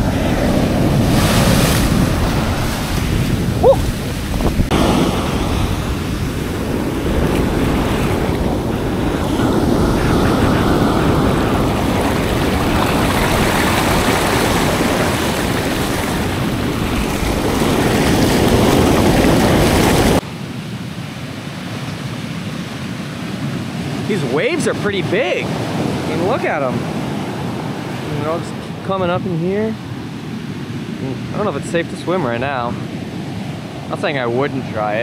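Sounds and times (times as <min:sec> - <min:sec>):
wind buffeting microphone: 0:00.0 - 0:20.2
waves breaking on beach: 0:00.0 - 0:35.0.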